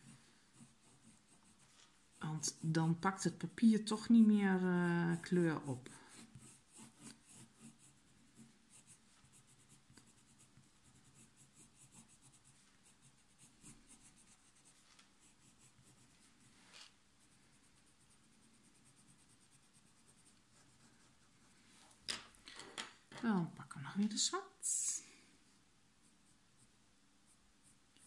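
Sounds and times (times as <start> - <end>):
pencil scratching on paper: 0.0 - 3.5, 4.1 - 16.6, 17.2 - 21.5.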